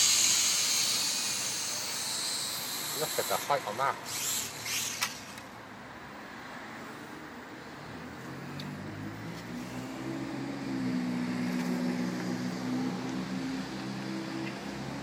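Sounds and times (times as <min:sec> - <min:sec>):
outdoor background noise: 0:00.0 - 0:15.0
vehicle engine humming: 0:06.8 - 0:15.0.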